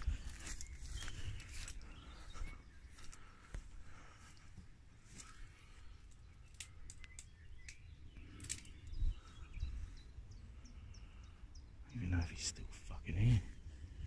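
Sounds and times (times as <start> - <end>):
bird chirping: 0.0 - 14.0
twigs snapping: 6.1 - 8.9.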